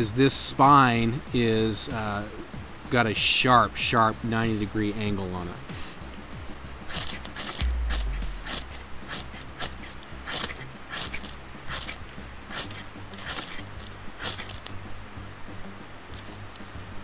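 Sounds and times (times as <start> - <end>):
knife scraping ferrocerium rod: 8.4 - 14.6.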